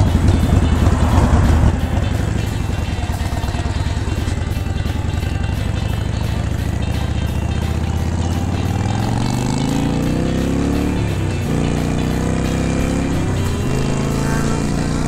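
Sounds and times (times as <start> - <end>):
wind rush: 0.0 - 3.4
motorcycle engine revving: 0.0 - 15.0.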